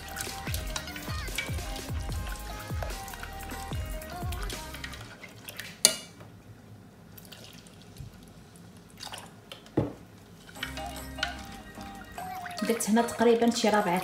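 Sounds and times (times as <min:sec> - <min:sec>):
whisk stirring in a metal pot: 0:00.0 - 0:05.3.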